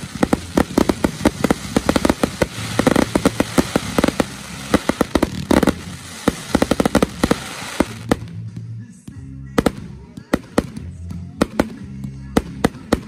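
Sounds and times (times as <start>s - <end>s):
dense crackling: 0.0s - 8.2s
firework shells bursting: 0.0s - 8.2s.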